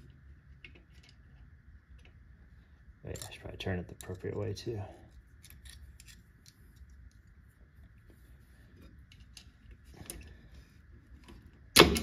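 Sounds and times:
pliers clicking and scraping on metal: 5.4s - 6.9s.

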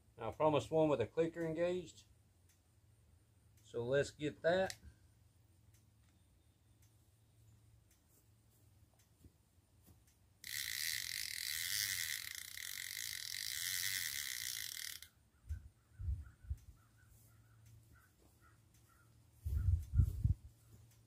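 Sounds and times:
fishing reel clicker buzzing: 10.4s - 15.2s.

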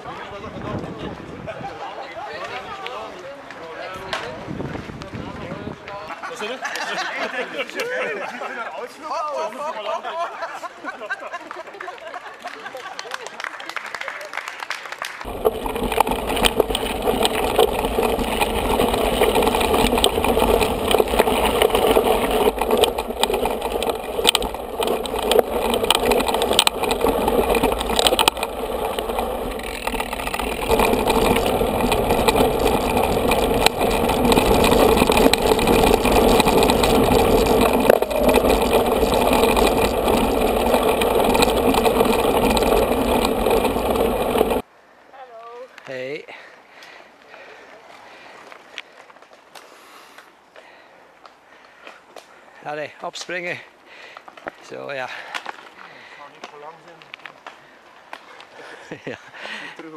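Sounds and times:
bike rattling over bumps: 15.2s - 44.7s
tyres rumbling on gravel: 15.2s - 44.7s, 52.5s - 59.9s.

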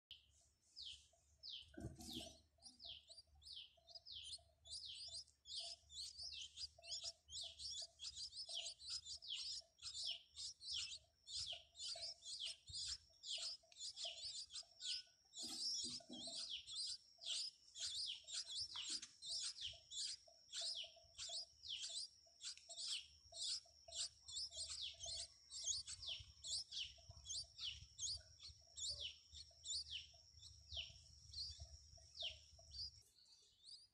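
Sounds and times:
nestling birds begging chirps: 0.1s - 33.9s.

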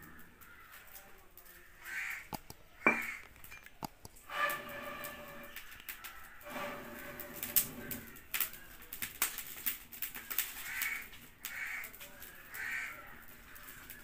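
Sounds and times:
crow cawing: 0.0s - 2.3s, 2.9s - 3.3s, 5.4s - 8.6s, 10.6s - 14.0s
firewood snapping in stove: 7.1s - 12.8s.

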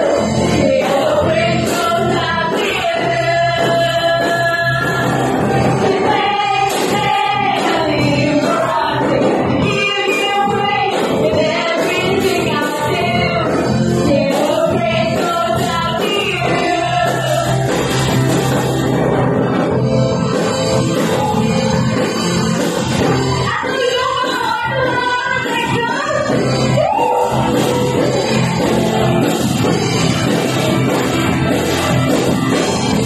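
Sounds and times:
women singing into microphones: 0.0s - 18.1s, 23.0s - 28.4s
live rock band playing: 0.0s - 33.0s.

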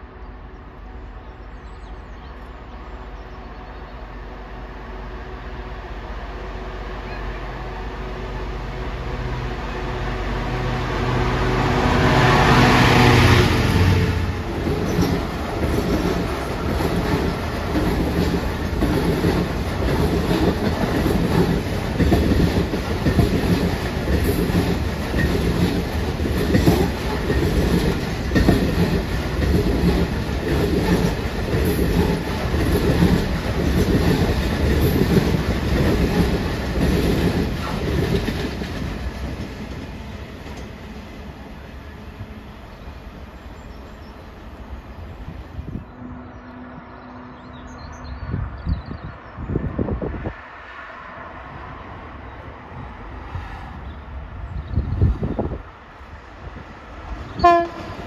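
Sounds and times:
diesel locomotive engine: 0.0s - 58.0s
train wheels clattering on rail joints: 13.6s - 41.2s.

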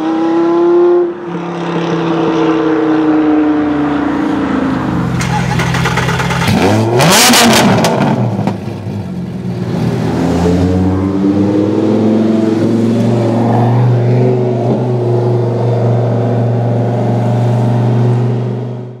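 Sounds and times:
sports car engine revving: 5.4s - 9.0s.

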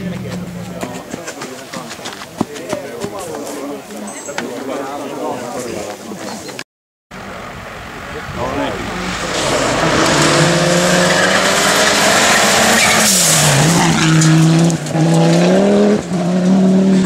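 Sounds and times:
rally car engine at high revs: 8.7s - 17.0s.

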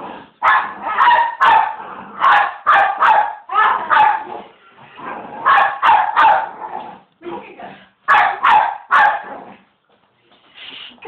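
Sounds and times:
small dog barking: 0.4s - 4.3s, 5.4s - 6.6s, 8.1s - 9.3s.

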